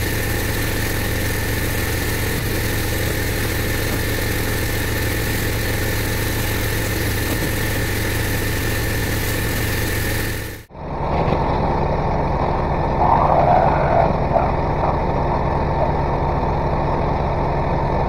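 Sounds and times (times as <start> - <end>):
pressure washer engine running: 0.0 - 10.7.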